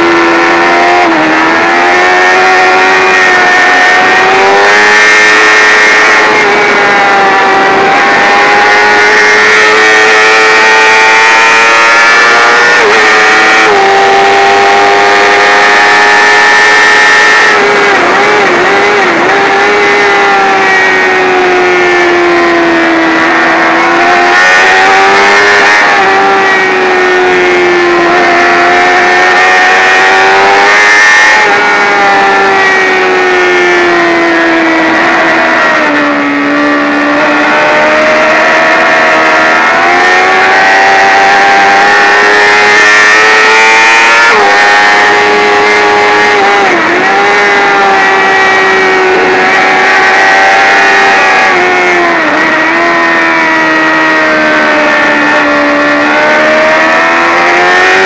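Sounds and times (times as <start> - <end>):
motorcycle engine revving hard: 0.0 - 58.0
wind rush: 4.0 - 10.2.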